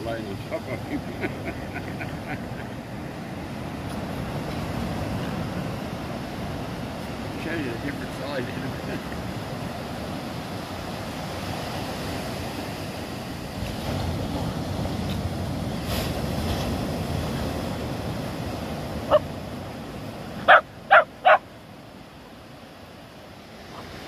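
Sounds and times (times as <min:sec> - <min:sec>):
surf: 0:00.0 - 0:24.0
wind: 0:00.0 - 0:24.0
dog barking: 0:20.4 - 0:21.4.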